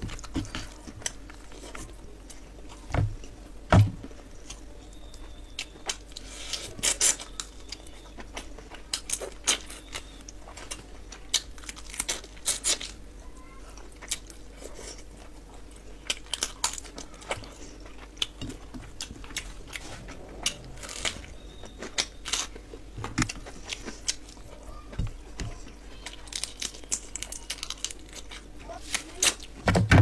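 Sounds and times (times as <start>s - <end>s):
crunchy bites and chewing: 4.3s - 13.1s, 13.8s - 24.5s, 25.6s - 29.6s.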